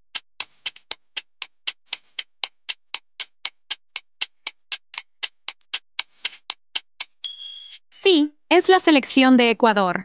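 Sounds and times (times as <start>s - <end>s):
clock-like ticking: 0.1s - 7.4s.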